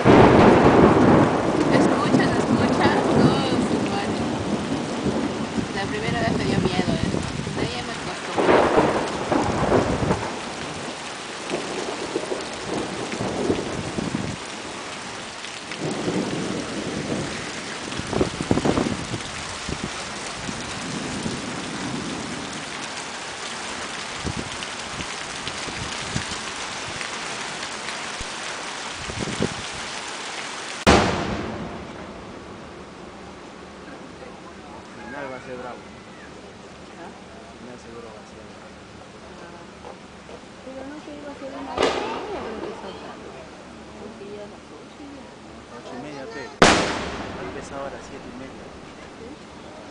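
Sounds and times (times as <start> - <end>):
rolls of thunder: 0.0 - 7.7, 8.3 - 14.5, 15.8 - 22.6, 30.9 - 32.8, 41.7 - 43.3, 46.6 - 49.0
steady rain: 0.0 - 49.9.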